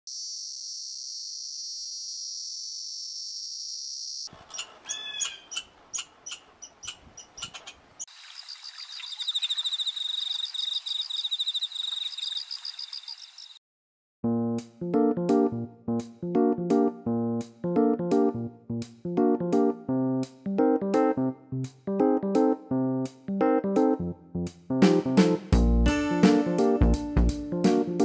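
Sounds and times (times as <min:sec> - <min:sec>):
sharp clicks and short chirps: 0:04.4 - 0:13.6
chorus of pulsing high chirps: 0:04.5 - 0:13.6
cicada buzzing: 0:08.0 - 0:13.6
piano music: 0:16.4 - 0:17.0, 0:22.0 - 0:24.0, 0:24.8 - 0:28.0.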